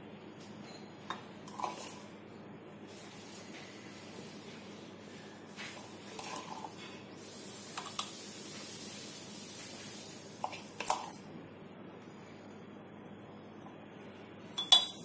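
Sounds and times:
spoon clinking against glass mugs: 14.6s - 15.0s.

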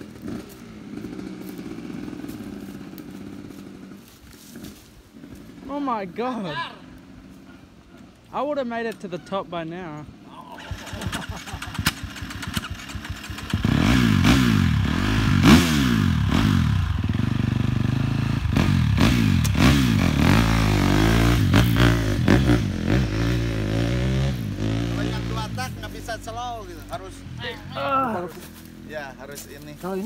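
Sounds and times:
dirt bike engine revving: 0.0s - 4.0s, 10.6s - 29.3s.

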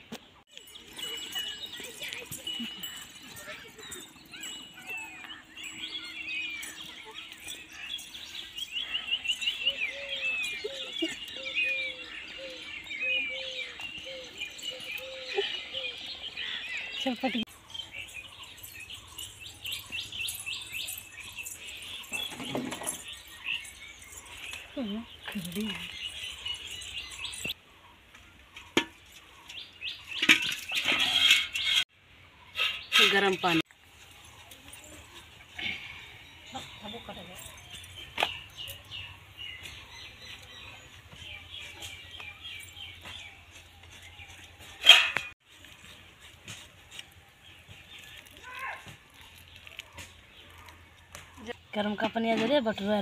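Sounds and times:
small birds chirping: 0.2s - 53.0s
metal lid clattering on pot: 44.8s - 45.3s.

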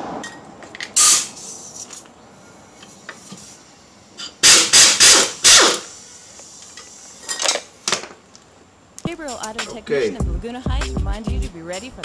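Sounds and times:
pneumatic wrench bursts: 1.0s - 1.8s, 4.2s - 7.6s.

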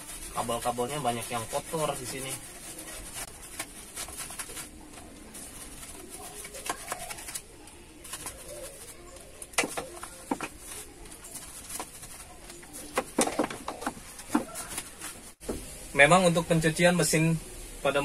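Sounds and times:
bristle brush scrubbing: 0.0s - 7.4s.

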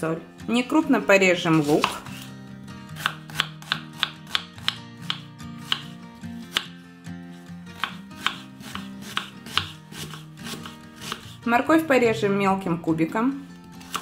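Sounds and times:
background music: 0.0s - 14.0s
knife slicing onion on board: 1.5s - 2.3s, 3.0s - 6.8s, 7.7s - 11.4s, 13.8s - 14.0s.

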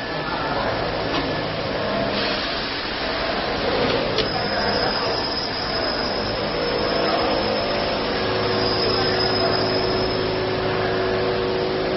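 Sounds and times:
faint high whine: 3.0s - 11.9s.

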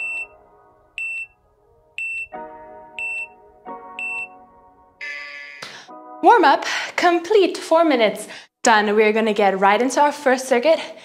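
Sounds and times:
soft background music: 0.0s - 8.1s
short high timer beeps: 1.0s - 1.3s, 2.0s - 2.3s, 3.0s - 3.3s, 4.0s - 4.3s.

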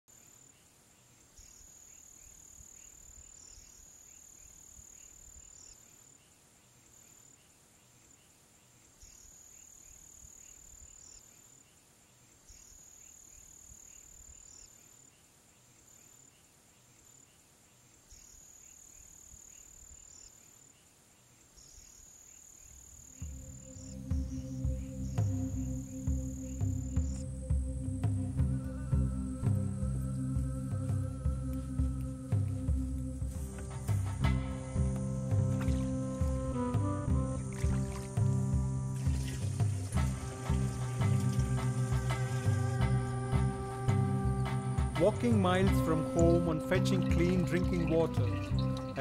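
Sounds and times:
insects trilling: 0.1s - 45.4s
soft pulsing insect calls: 0.1s - 49.0s.

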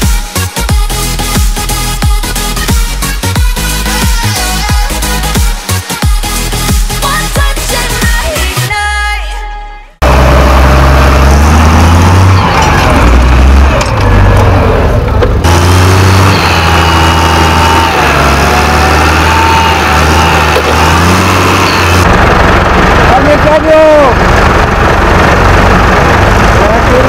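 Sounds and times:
tractor diesel engine under load: 10.0s - 27.0s.

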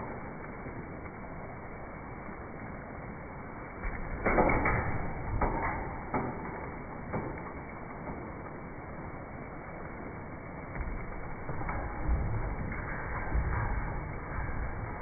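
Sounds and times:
rain hissing: 0.0s - 15.0s
trampoline springs creaking: 0.0s - 15.0s
trampoline mat thumping: 3.8s - 7.4s, 10.7s - 15.0s.

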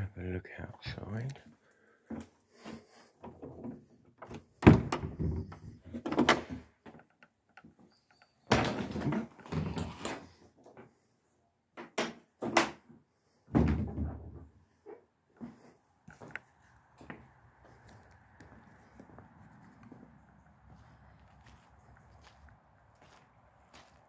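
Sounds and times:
door clunks and knocks: 4.2s - 6.6s, 13.5s - 14.5s.

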